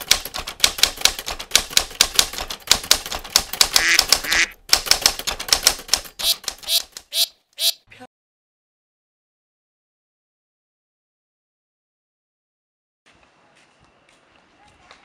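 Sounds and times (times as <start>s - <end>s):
typewriter keys clacking: 0.0s - 7.1s
duck quacks: 3.8s - 4.5s, 6.2s - 7.9s.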